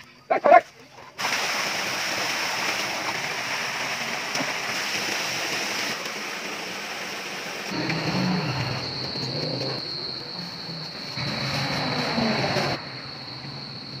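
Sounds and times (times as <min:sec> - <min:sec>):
running water rushing: 0:01.2 - 0:09.5.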